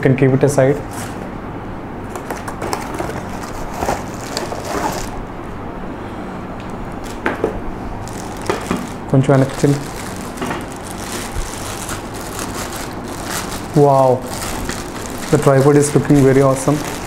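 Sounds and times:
steady low hum: 0.0 - 17.0
packaging rustling: 2.1 - 5.2, 6.9 - 7.4, 8.0 - 17.0.

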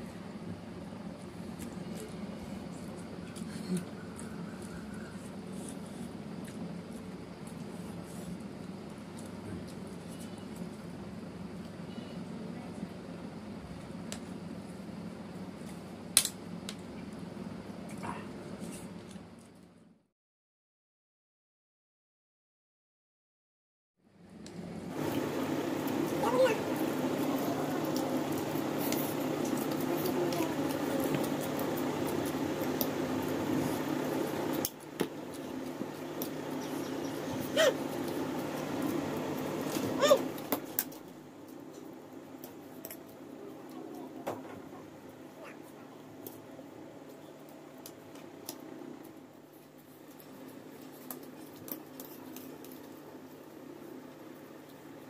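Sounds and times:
steady background hum: 0.0 - 20.1, 24.0 - 55.0
chewing: 1.6 - 7.7.

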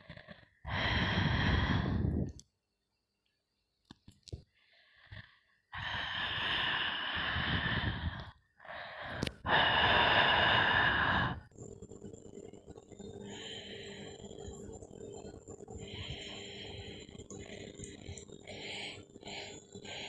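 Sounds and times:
long breathy hisses: 0.7 - 2.3, 4.7 - 11.5.

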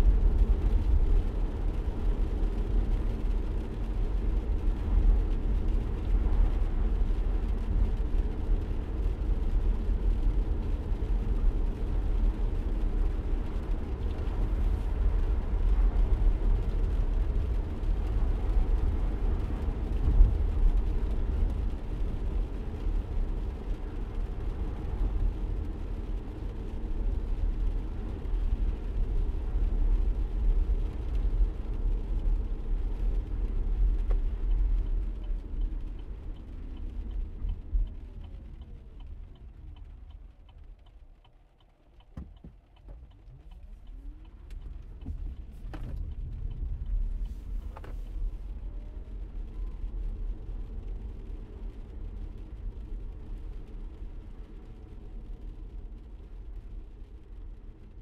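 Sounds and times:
car road and engine rumble: 0.0 - 58.0.

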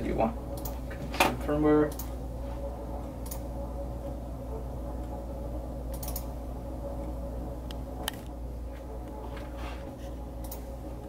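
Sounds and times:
low electrical hum: 0.0 - 11.0
computer mouse clicks: 5.9 - 6.3, 10.4 - 10.7.

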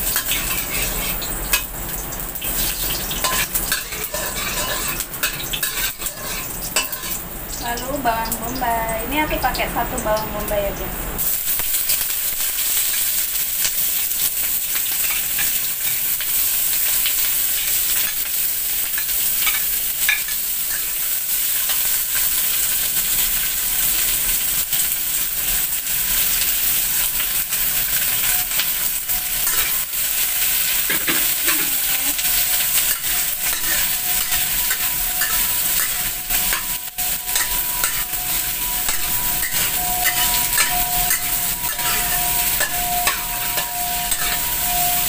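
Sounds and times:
metal spatula scraping wok: 0.0 - 1.7, 2.4 - 7.3, 27.6 - 45.0
onions sizzling in hot oil: 0.0 - 45.0.

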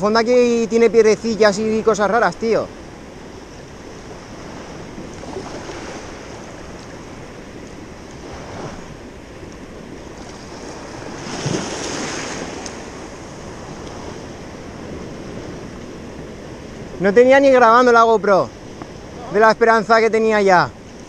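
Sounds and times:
small waves lapping on shore: 0.0 - 21.0.

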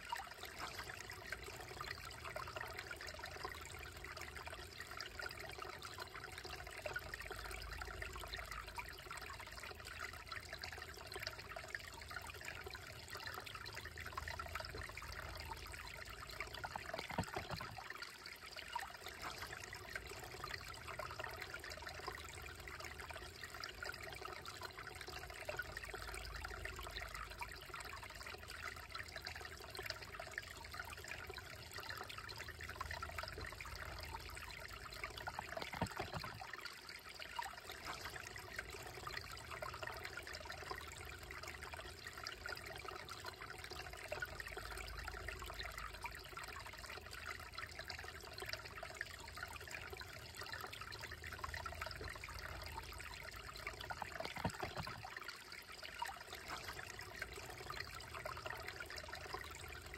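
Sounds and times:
creek babbling over stones: 0.0 - 59.9.

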